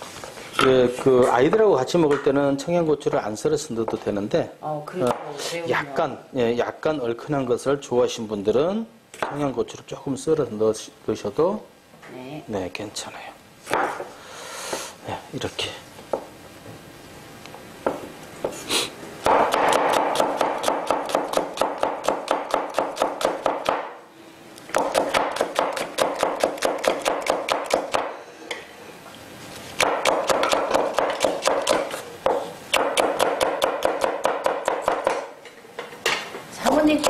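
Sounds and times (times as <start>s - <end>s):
knife chopping on wooden board: 19.2s - 23.9s, 24.7s - 28.1s, 29.8s - 35.3s.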